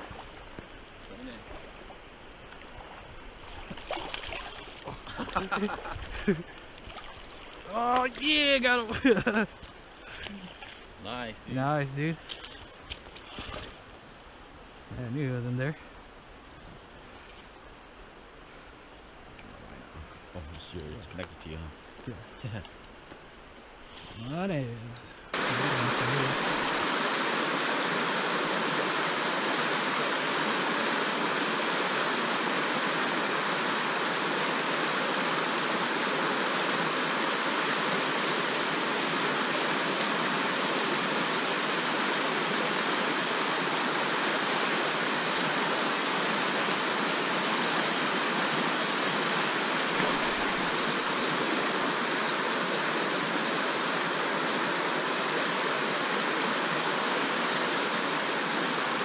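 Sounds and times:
river water rushing over rocks: 25.0s - 59.0s.

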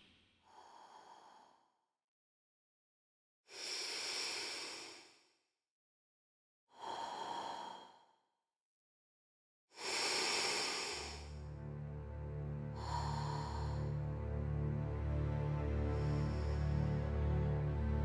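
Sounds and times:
breath-like whooshes of noise: 9.8s - 11.2s.

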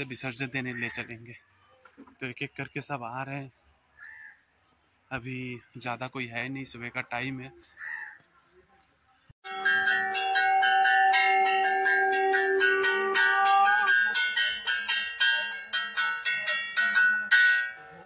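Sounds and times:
hand bell ringing: 9.4s - 18.0s
long held note: 9.5s - 15.1s.

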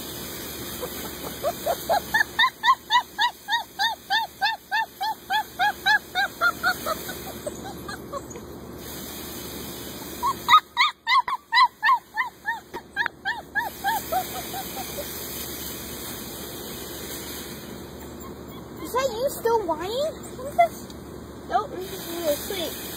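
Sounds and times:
animal calling: 0.8s - 8.5s.

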